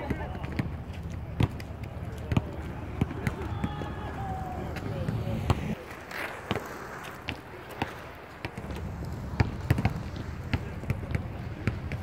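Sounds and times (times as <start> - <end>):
skate wheels rolling on asphalt: 0.0 - 12.0
hockey stick knocking ball: 4.7 - 12.0.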